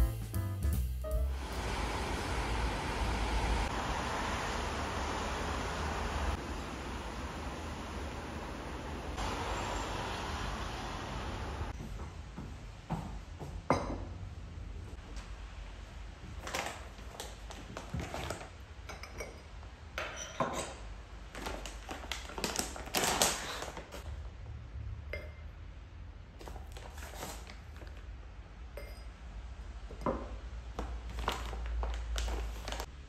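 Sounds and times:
glass clinks and taps on stone: 28.8s - 29.1s.

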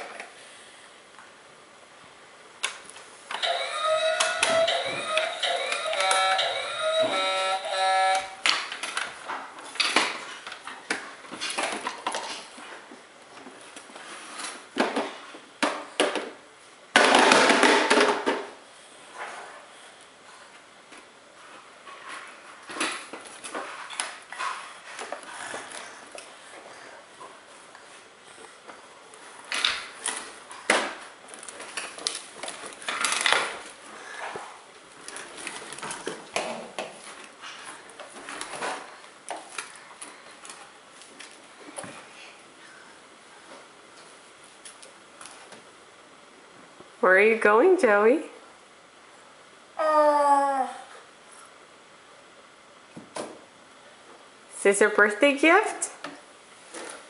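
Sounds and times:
plastic wheels rolling on tiles: 3.3s - 10.6s.

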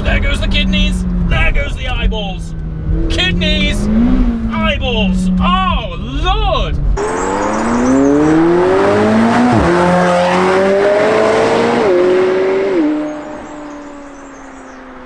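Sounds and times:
gear upshifts: 0.3s - 15.0s
sports car accelerating hard: 2.5s - 5.4s, 6.8s - 15.0s.

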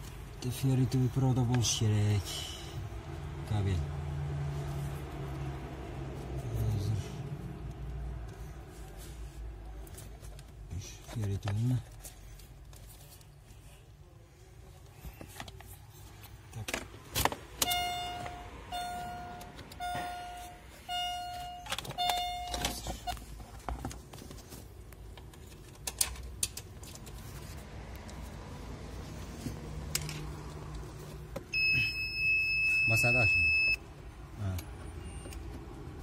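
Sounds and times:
car wiring being handled: 7.7s - 14.0s, 14.6s - 28.4s, 29.0s - 32.8s
electronic buzzer beeps: 17.8s - 22.6s.

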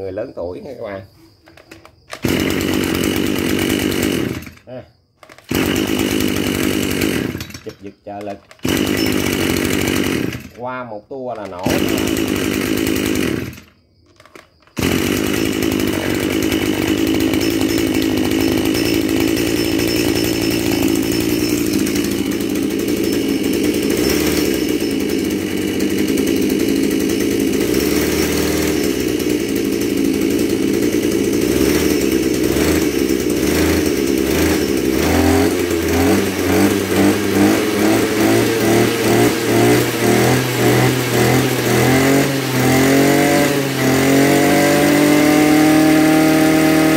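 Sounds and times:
brush cutter engine idling and revving: 0.0s - 46.9s.

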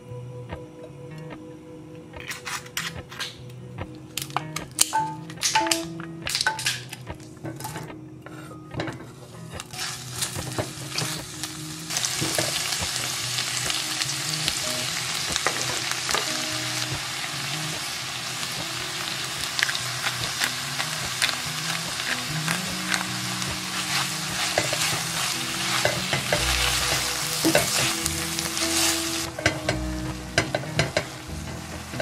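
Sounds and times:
vegetables sizzling in oil: 9.6s - 32.0s.

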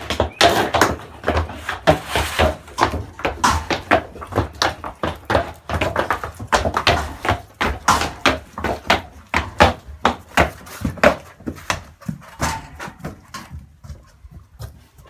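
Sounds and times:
horse hooves clopping on hard floor: 0.0s - 15.0s.

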